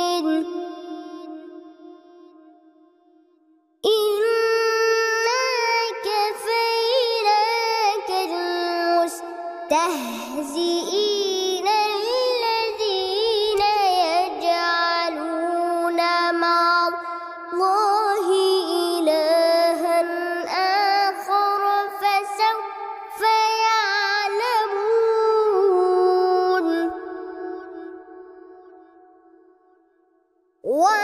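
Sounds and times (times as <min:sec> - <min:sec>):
boy chanting melodically: 0:00.0 - 0:02.5, 0:03.8 - 0:29.1, 0:30.6 - 0:31.0.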